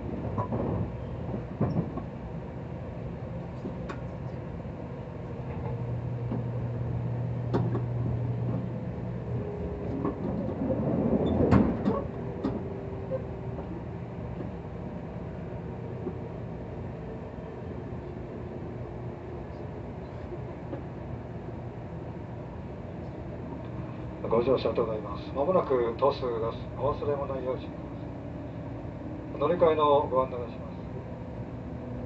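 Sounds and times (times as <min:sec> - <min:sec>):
train clatter: 0:00.0 - 0:02.2, 0:07.3 - 0:15.0
train cabin rumble: 0:00.0 - 0:32.0.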